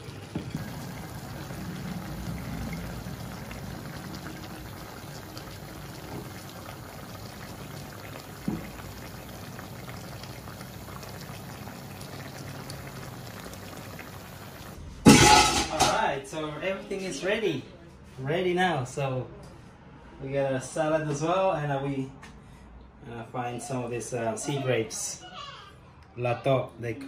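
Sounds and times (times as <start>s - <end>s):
sauce bubbling and crackling: 0.0s - 14.8s.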